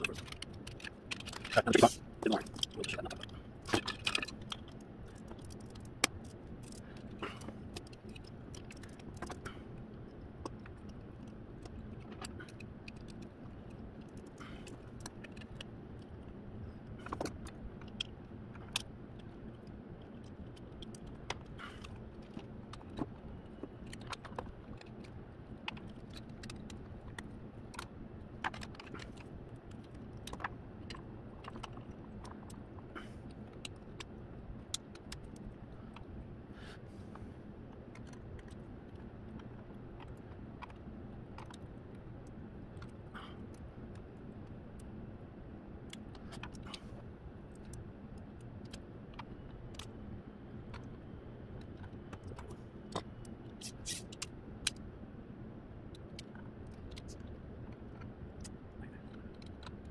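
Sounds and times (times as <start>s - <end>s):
plastic parts clicking and rattling: 0.0s - 36.2s, 37.7s - 44.9s, 55.9s - 59.9s
steady low hum: 0.0s - 59.9s.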